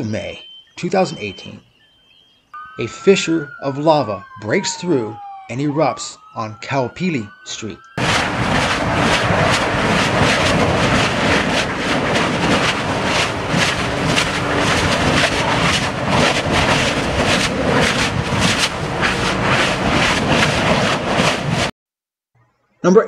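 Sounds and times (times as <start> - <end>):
lava spatter bursts and crackles: 8.0 - 21.7.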